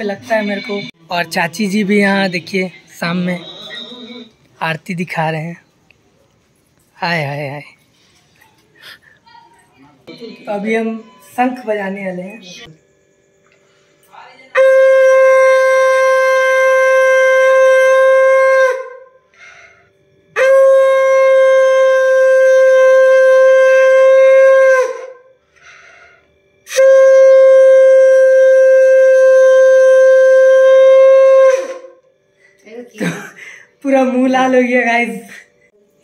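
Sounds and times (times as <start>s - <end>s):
conch shell blasts: 14.6s - 19.2s, 20.4s - 25.3s, 26.7s - 32.0s.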